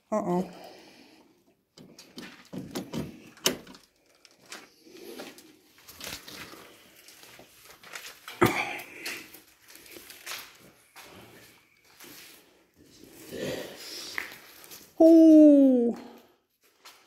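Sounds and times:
footsteps with scuffs: 5.7 - 13.2.

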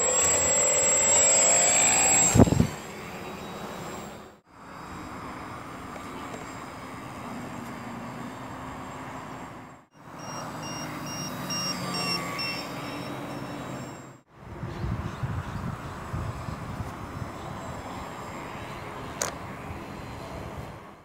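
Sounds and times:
electric motor and propeller buzzing: 0.0 - 9.4, 10.0 - 20.9
wind buffeting microphone: 2.3 - 2.8, 14.4 - 18.2
short high beeps: 10.1 - 14.1.

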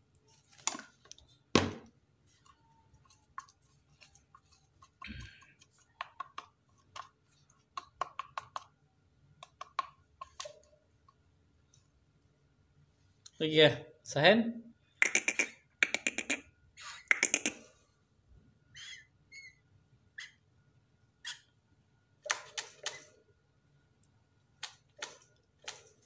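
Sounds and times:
sharp clicks and taps: 7.7 - 8.7, 9.4 - 11.2, 15.0 - 16.4.

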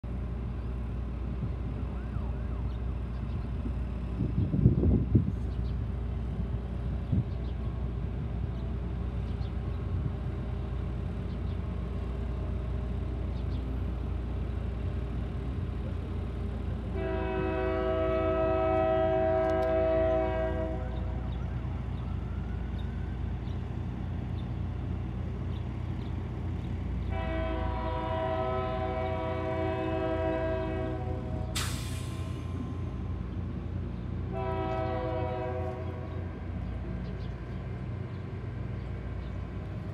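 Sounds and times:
locomotive air horn blasts: 16.9 - 21.2, 27.0 - 32.2, 34.2 - 36.2.

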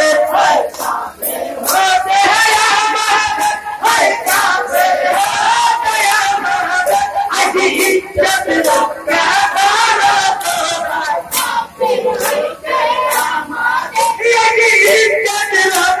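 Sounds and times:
men chanting: 0.0 - 16.0
sharp claps: 0.7 - 3.6, 4.2 - 5.4, 7.7 - 8.8, 10.3 - 14.2, 14.8 - 16.0.

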